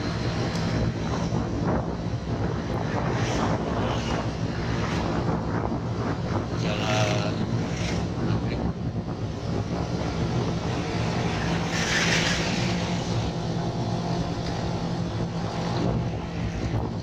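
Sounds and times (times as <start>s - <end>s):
wind and road noise: 0.0s - 17.0s.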